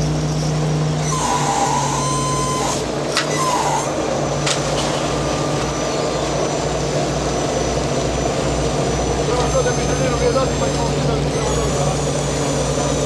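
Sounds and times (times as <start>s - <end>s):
boat engines droning: 0.0s - 13.0s.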